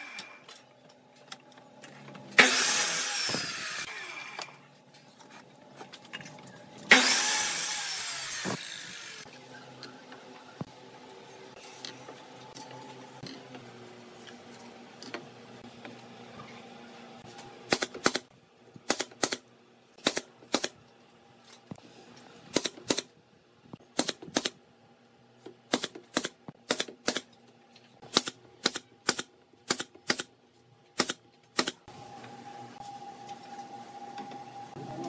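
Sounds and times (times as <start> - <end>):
pneumatic nailer firing: 2.4 - 3.9, 6.9 - 9.2, 17.7 - 19.4, 20.0 - 20.8, 22.5 - 23.1, 23.9 - 24.6, 25.7 - 27.3, 28.1 - 30.3, 31.0 - 31.8.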